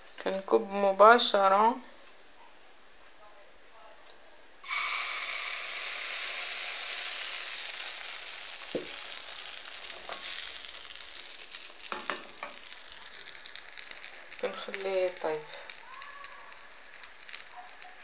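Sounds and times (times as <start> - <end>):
batter sizzling in hot oil: 4.6 - 18.0.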